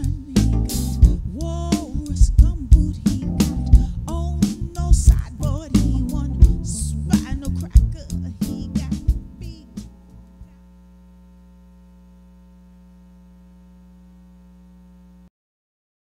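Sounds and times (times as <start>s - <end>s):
funk band playing: 0.0s - 10.2s
steady electrical hum: 0.0s - 15.3s.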